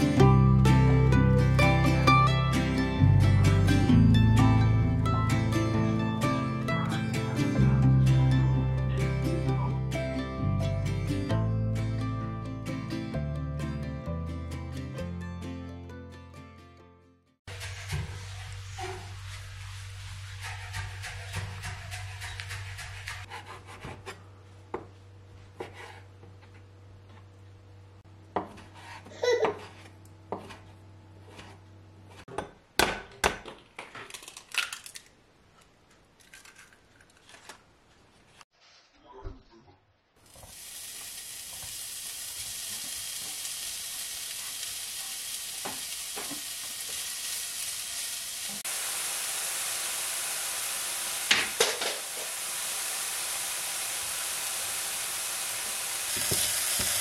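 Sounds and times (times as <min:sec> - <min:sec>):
knife chopping on wooden board: 0:28.3 - 0:30.6
bacon sizzling in a frying pan: 0:40.2 - 0:57.0.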